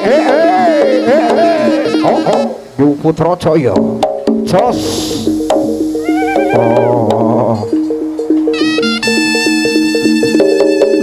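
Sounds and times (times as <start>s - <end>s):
pitched percussion melody: 0.0s - 11.0s
high sustained wind note: 4.7s - 7.0s.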